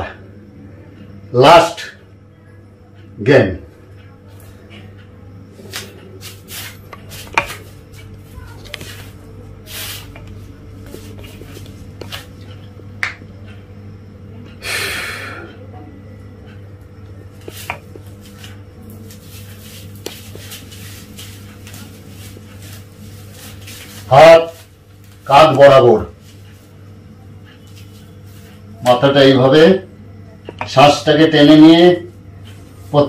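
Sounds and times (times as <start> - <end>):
steady low hum: 0.0 - 33.0
loud breath: 14.6 - 15.6.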